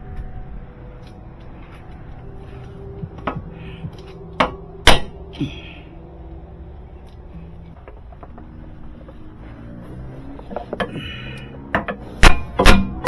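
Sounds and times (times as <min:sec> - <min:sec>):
hammer striking metal: 0:03.0 - 0:05.4, 0:11.7 - 0:13.0.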